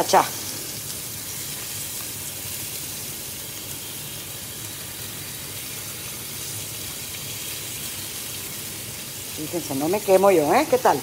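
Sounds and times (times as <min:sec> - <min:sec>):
bacon sizzling in a pan: 0:00.0 - 0:11.0.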